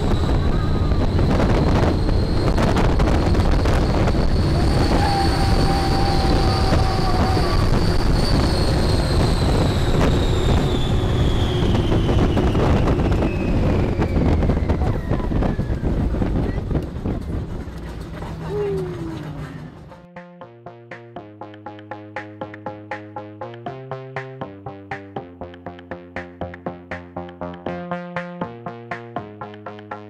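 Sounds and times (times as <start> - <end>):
wind rushing over microphone: 0.0 - 19.9
ride vehicle rumble: 0.0 - 20.1
high whine: 0.0 - 24.0.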